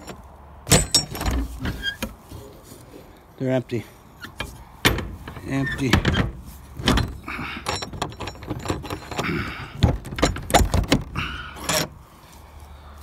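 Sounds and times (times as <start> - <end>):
metal door clanks and rattles: 0.0 - 2.0, 4.4 - 11.9.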